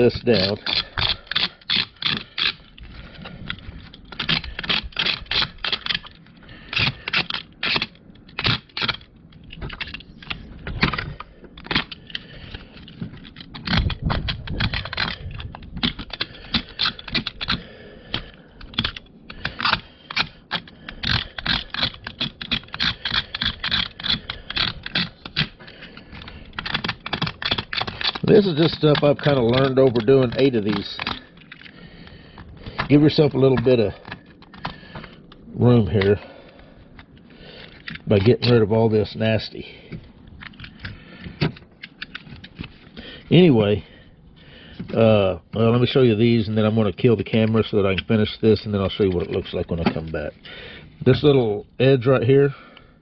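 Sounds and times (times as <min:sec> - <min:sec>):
blade scraping plastic edge: 0:00.0 - 0:35.3.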